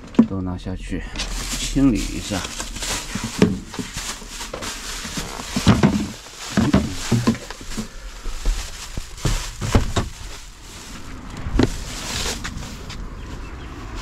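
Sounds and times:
plastic bag rustling: 1.0s - 14.0s
handling knocks and clicks: 2.2s - 10.4s.

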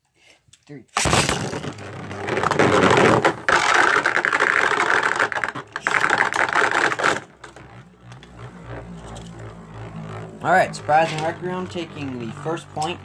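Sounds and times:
spinning tops clattering: 1.2s - 10.2s
low hum: 3.3s - 13.0s.

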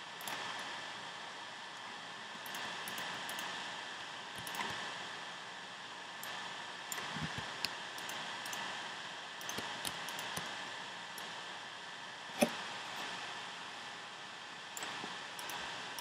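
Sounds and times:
steady hiss: 0.0s - 16.0s
mouse and keyboard clicks: 4.4s - 4.8s, 9.4s - 10.5s.

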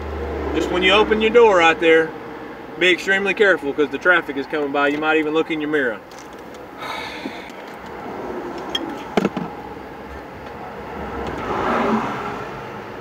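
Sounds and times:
highway traffic: 0.0s - 13.0s
vehicle passing close: 6.7s - 13.0s.

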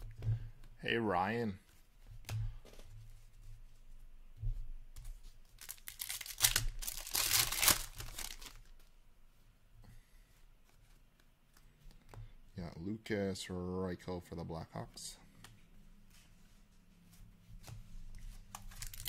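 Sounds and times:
foil wrapper tearing and crinkling: 5.6s - 8.7s, 18.7s - 19.0s.

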